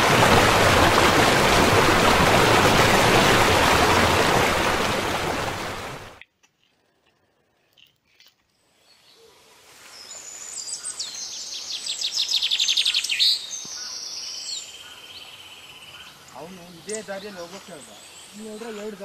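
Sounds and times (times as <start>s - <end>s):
birds chirping and trilling: 8.8s - 19.0s.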